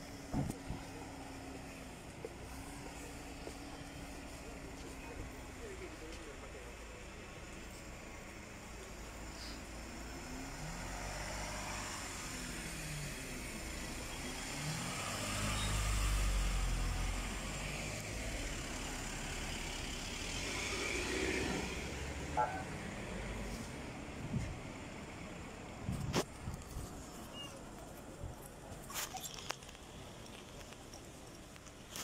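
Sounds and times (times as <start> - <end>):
car engine passing by: 9.2 - 25.0.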